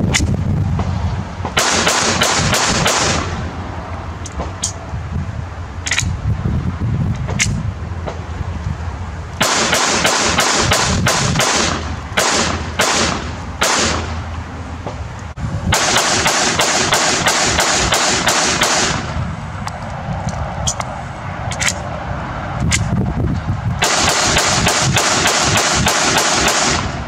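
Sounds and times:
pistol shots: 1.6s - 3.4s, 9.4s - 14.2s, 15.7s - 19.2s, 23.8s - 27.0s.

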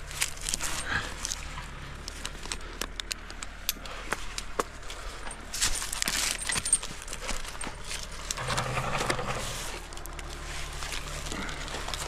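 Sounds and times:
metallic clinks of climbing hardware: 0.3s - 8.4s.

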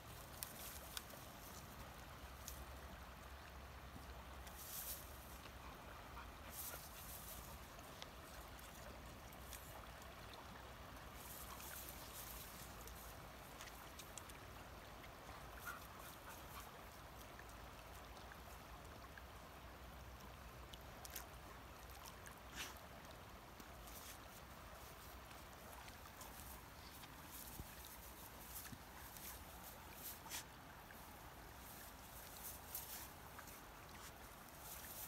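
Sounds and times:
soft rustles and clicks: 0.0s - 2.7s, 4.4s - 5.6s, 23.6s - 35.0s
river flowing: 0.0s - 35.0s.

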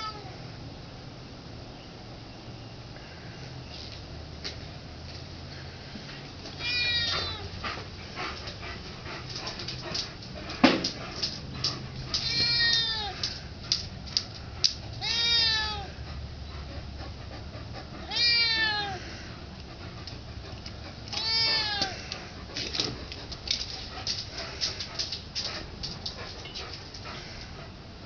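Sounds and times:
cat meowing: 0.0s - 0.4s, 6.6s - 7.5s, 12.2s - 13.2s, 15.0s - 16.0s, 18.0s - 19.2s, 21.1s - 22.2s.

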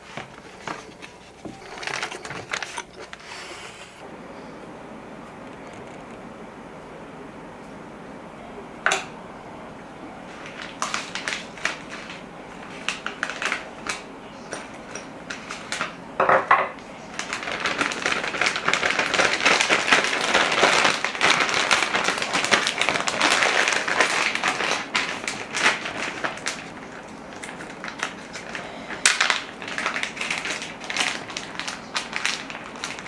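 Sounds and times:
crackling rustle: 0.0s - 4.0s, 10.2s - 16.0s, 16.8s - 33.0s.

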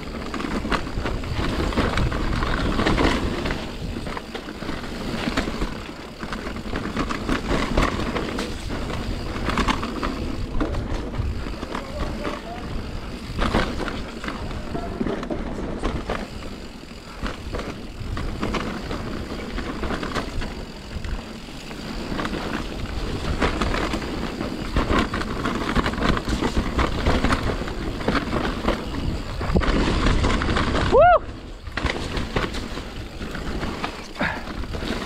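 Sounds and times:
wind on microphone: 0.0s - 5.3s, 22.1s - 32.6s
bike rattling and knocking: 0.0s - 35.0s
tyres rolling over mud: 0.0s - 35.0s.

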